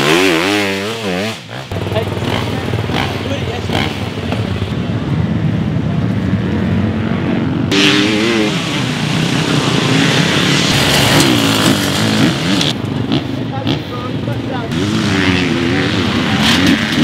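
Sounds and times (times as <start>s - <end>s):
dirt bike engines revving: 0.0s - 17.0s.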